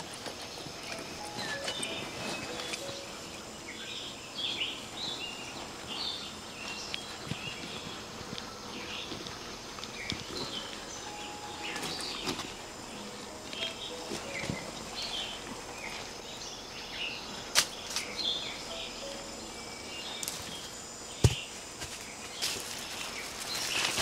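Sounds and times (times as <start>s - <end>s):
birds chirping: 0.0s - 24.0s
insects: 0.0s - 24.0s
leaves rustling: 0.0s - 24.0s
branches snapping and clicking: 17.5s - 18.1s
sharp crack: 17.5s - 18.1s
fruit thudding on ground: 21.2s - 22.0s.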